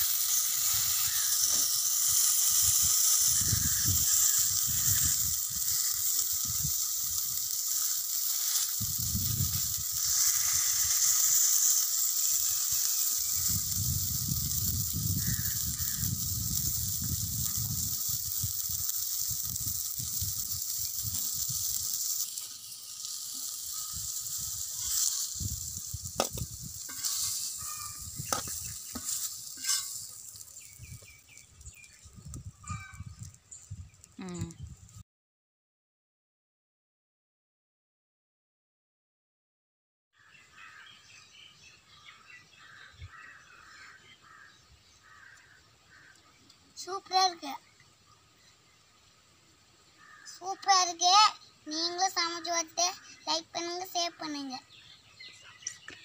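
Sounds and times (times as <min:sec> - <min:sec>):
fish sizzling in oil: 0:00.0 - 0:35.0, 0:42.6 - 0:48.4, 0:49.2 - 0:54.6
metal spatula scraping griddle: 0:09.9 - 0:13.6, 0:21.0 - 0:30.7.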